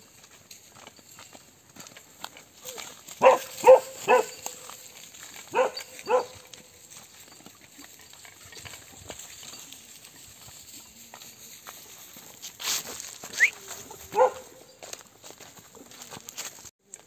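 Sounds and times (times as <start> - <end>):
dog barking: 3.2 - 4.7, 5.5 - 6.5, 13.9 - 14.8.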